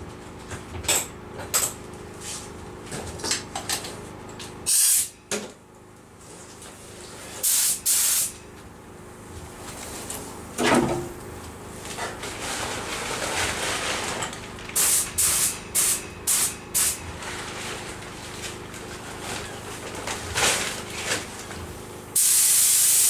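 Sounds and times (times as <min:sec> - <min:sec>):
spray gun hissing: 0:04.7 - 0:05.1, 0:07.4 - 0:08.3, 0:14.8 - 0:17.0, 0:22.2 - 0:23.0.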